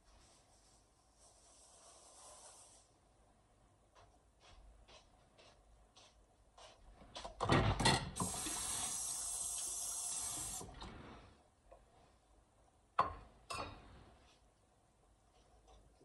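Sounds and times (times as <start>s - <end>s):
kitchen tap running: 8.2s - 10.8s.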